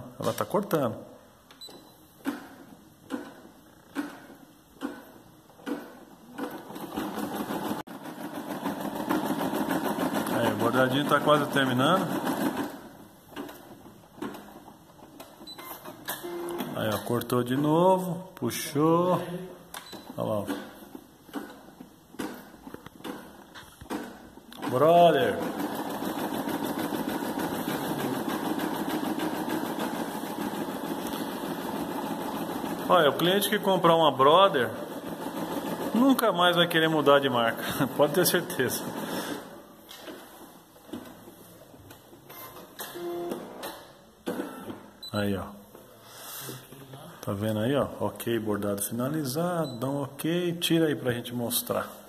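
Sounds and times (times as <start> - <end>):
embroidery machine stitching: 2.2 - 17.2, 19.8 - 41.3.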